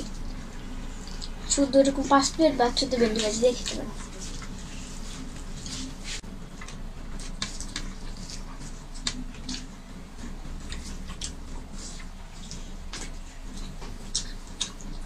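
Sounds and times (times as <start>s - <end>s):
fingers mixing rice on plates: 0.0s - 15.0s
chewing smacks: 6.6s - 15.0s.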